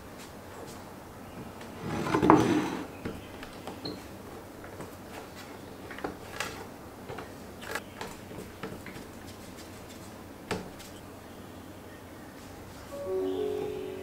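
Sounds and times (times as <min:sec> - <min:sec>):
hands kneading dough on wood: 0:03.1 - 0:11.0.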